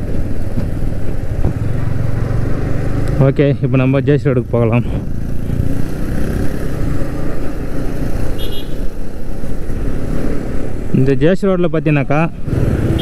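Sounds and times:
motorcycle engine running: 0:00.0 - 0:08.7
city traffic: 0:00.0 - 0:13.0.

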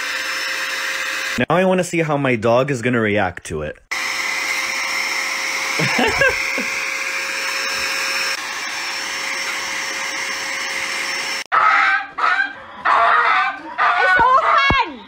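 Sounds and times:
electric air duster hissing: 0:04.0 - 0:11.4.

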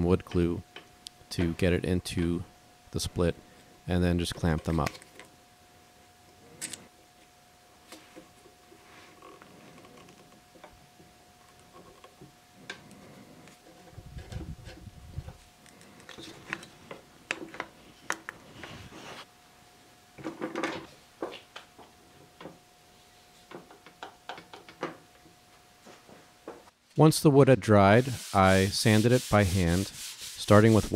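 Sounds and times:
faint steady whine: 0:00.0 - 0:29.0.

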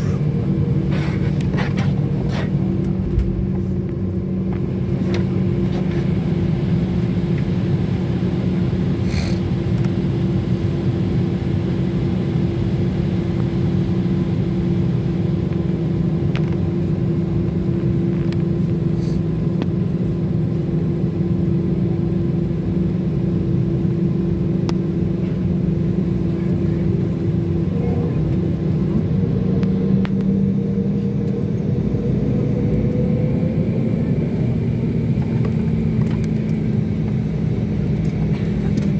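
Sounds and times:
airliner cabin drone: 0:00.0 - 0:38.9
hum tones: 0:02.7 - 0:05.0.

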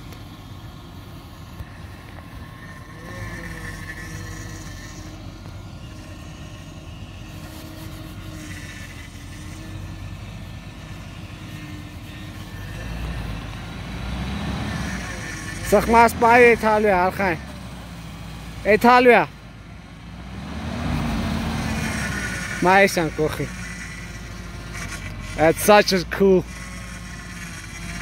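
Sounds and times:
suv engine at low revs: 0:00.0 - 0:28.0.

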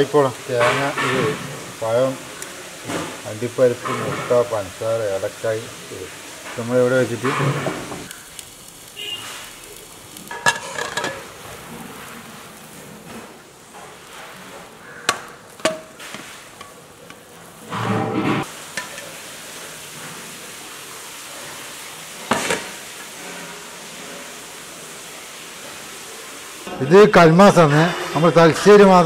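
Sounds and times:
faint steady hiss: 0:00.0 - 0:17.8, 0:18.4 - 0:29.0
pan and plate clinking: 0:00.4 - 0:01.8, 0:10.2 - 0:12.1, 0:15.0 - 0:19.2.

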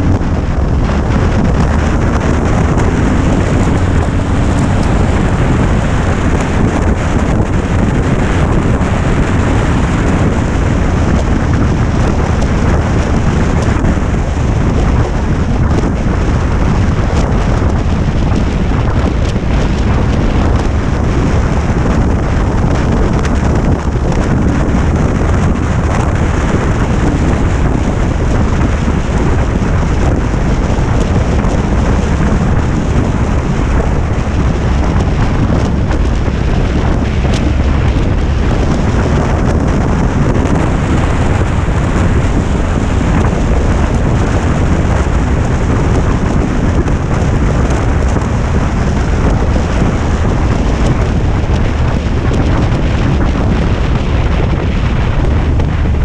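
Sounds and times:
motorcycle engine running: 0:00.0 - 0:56.0
wind rushing across microphone: 0:00.0 - 0:56.0.

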